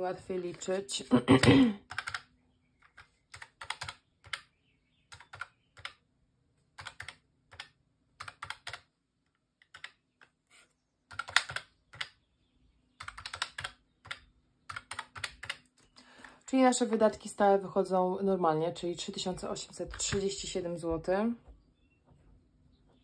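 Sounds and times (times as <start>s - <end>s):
calculator keys clicking: 1.8s - 4.5s, 5.1s - 6.0s, 6.8s - 8.9s, 9.6s - 10.3s, 11.1s - 12.2s, 13.0s - 15.8s.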